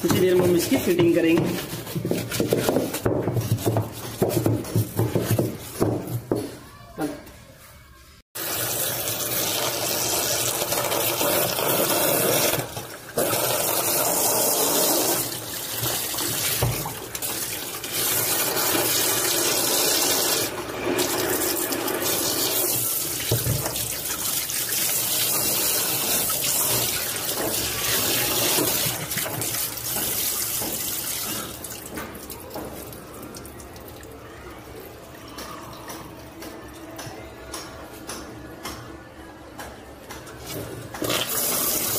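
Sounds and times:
hose water splashing on plastic: 0:08.4 - 0:34.2.

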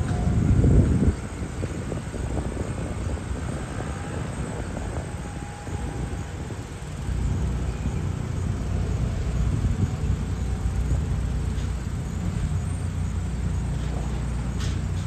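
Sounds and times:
diesel engines rumbling: 0:00.0 - 0:15.0.

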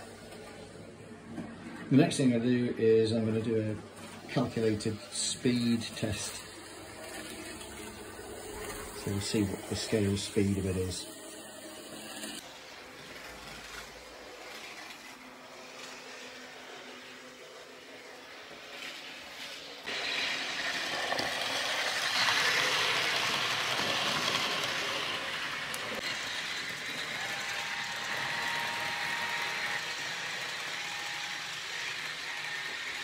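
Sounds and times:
model train wheels rattling on rail: 0:04.0 - 0:11.0, 0:18.5 - 0:33.0.

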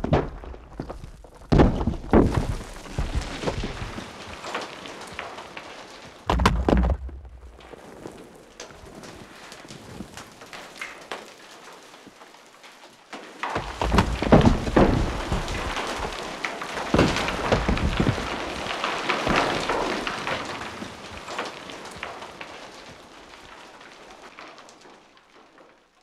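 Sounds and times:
rocks clattering and tumbling: 0:00.0 - 0:26.0
trickle of falling stones: 0:00.0 - 0:26.0
low rumble: 0:06.3 - 0:07.7.

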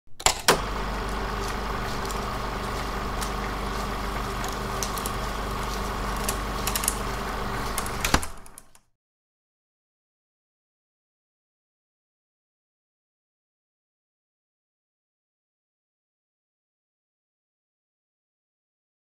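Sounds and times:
film projector running: 0:00.5 - 0:08.8.

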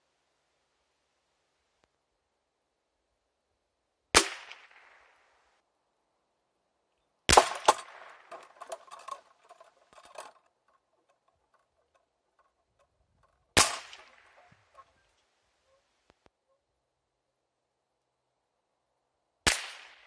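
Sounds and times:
rifle shots: 0:07.3 - 0:08.3, 0:13.6 - 0:14.4
bullet striking steel plate: 0:07.3 - 0:10.4, 0:13.5 - 0:14.9
steel plate clinking and rattling: 0:07.3 - 0:15.1.

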